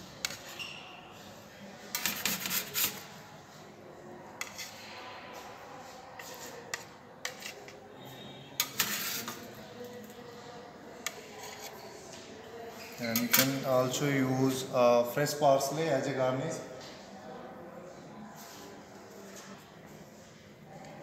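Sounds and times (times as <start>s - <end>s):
metal spatula scraping ceramic plate: 1.9s - 3.0s, 4.4s - 4.8s, 6.2s - 9.6s, 11.1s - 11.8s, 12.8s - 13.6s.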